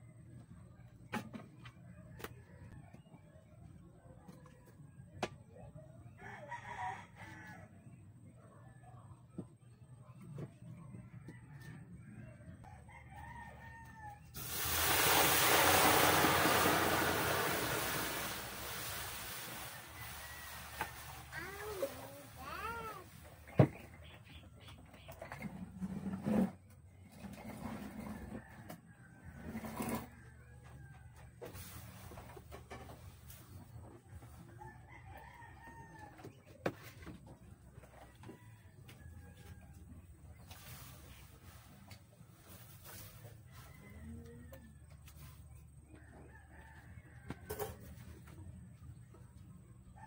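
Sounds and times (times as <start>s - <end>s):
rooster crowing: 12.6s - 21.8s
water hissing on hot wok: 14.4s - 22.5s.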